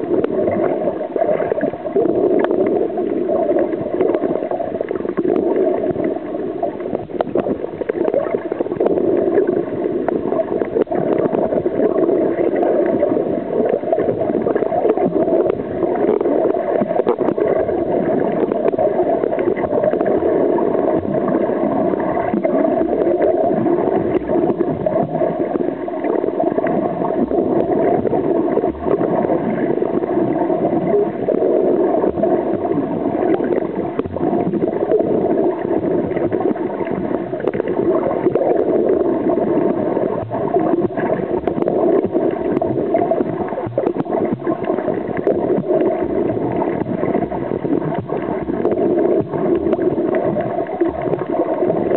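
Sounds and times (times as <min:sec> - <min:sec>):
underwater gurgling water: 0:00.0 - 0:51.9.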